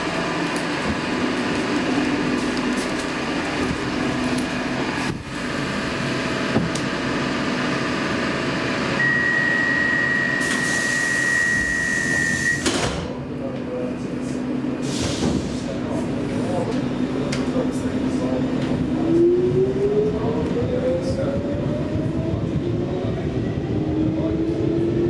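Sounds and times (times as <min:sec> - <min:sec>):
high warning tone: 0:09.0 - 0:12.6.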